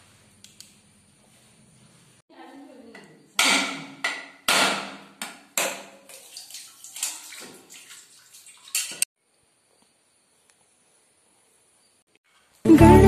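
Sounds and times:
knife striking coconut: 0:03.4 - 0:06.0
coconut water splashing into pot: 0:05.4 - 0:09.1.

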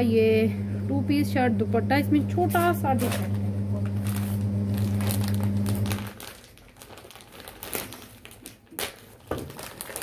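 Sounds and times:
plastic bag crinkling: 0:02.5 - 0:10.0.

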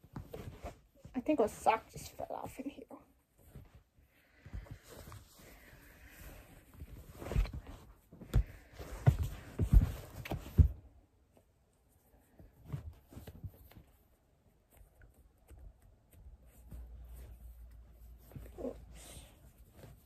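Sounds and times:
fabric rustling: 0:00.0 - 0:20.0
soft dull thumps: 0:06.6 - 0:11.4.

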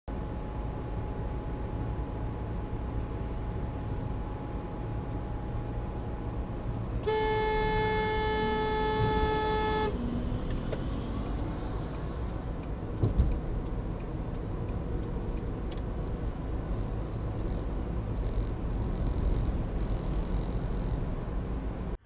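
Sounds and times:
road noise from moving car: 0:00.1 - 0:22.0
car horn held: 0:07.0 - 0:10.0
thump: 0:13.0 - 0:13.3.

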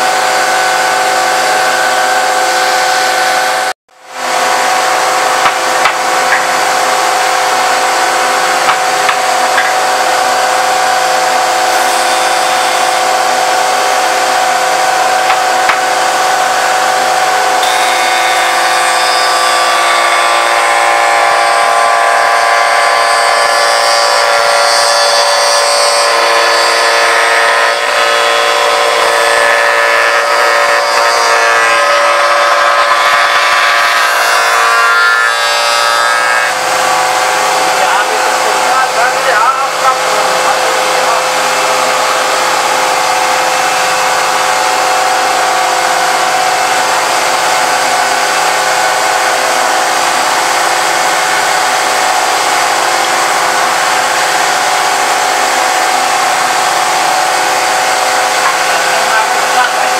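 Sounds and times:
woodworking machine whine: 0:00.0 - 0:59.9.

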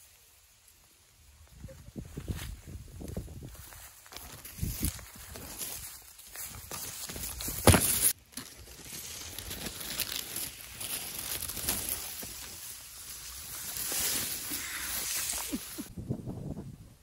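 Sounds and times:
rice stalks rustling: 0:00.0 - 0:15.9.

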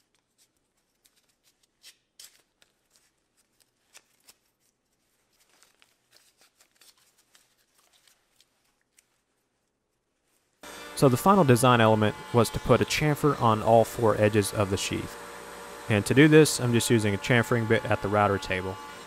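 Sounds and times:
tape tearing crackles: 0:00.0 - 0:09.2.

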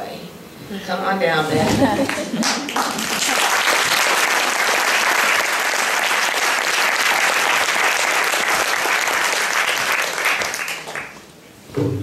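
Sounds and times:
audience clapping: 0:02.0 - 0:11.3.

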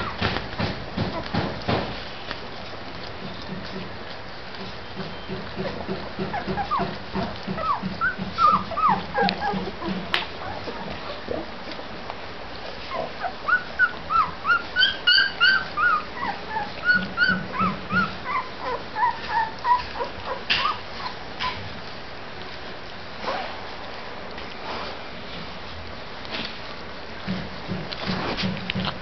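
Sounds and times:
puppies squeaking and whimpering: 0:00.0 - 0:01.8, 0:02.6 - 0:21.8.

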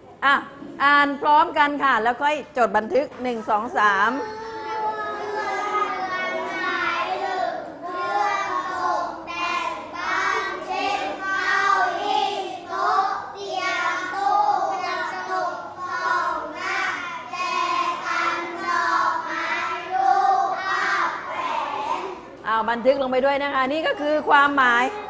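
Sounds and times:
children reading aloud in unison: 0:03.4 - 0:22.5.

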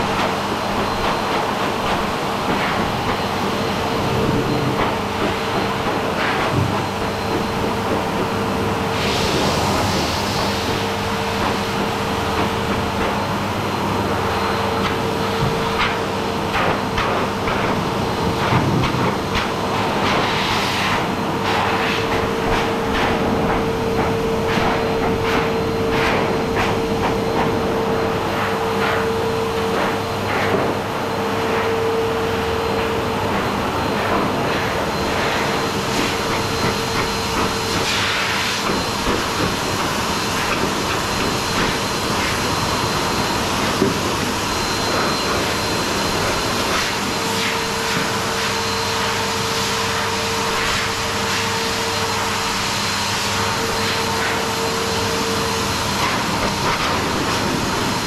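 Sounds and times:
blower motor whine: 0:00.0 - 0:58.0
pet dryer blowing air: 0:00.0 - 0:58.0.

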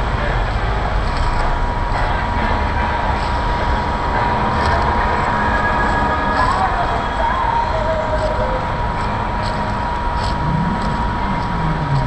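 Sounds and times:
faint steady whine: 0:00.0 - 0:12.0
passing vehicles rumble: 0:00.0 - 0:12.0.

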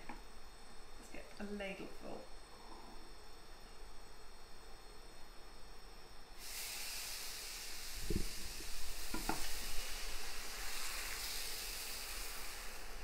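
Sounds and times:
batter sizzling on a pan: 0:03.0 - 0:13.0
utensil knocking: 0:09.1 - 0:09.5.

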